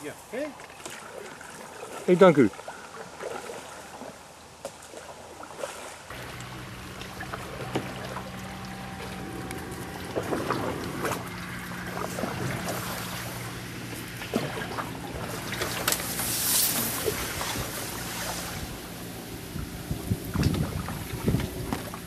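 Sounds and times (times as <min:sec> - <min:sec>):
water lapping and dripping: 0:00.3 - 0:22.0
steady low hum: 0:06.1 - 0:22.0
paddle knocks and splashes: 0:07.0 - 0:18.6, 0:20.2 - 0:22.0.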